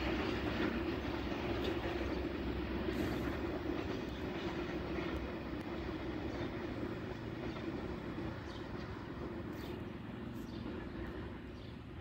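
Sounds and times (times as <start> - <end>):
freight train rumbling: 0.0 - 12.0.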